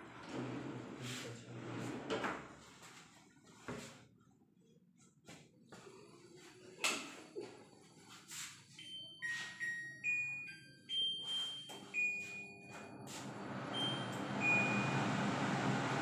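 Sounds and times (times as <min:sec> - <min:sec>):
extractor fan rushing: 0:13.0 - 0:16.0.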